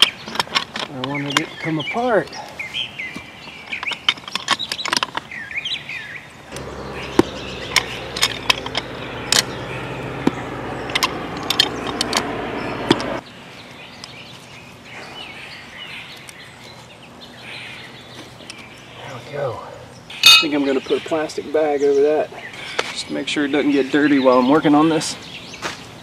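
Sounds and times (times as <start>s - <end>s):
birds chirping: 0.0s - 26.0s
steady low hum: 6.5s - 13.2s
metal pipe fitting clicking and scraping: 20.2s - 20.6s.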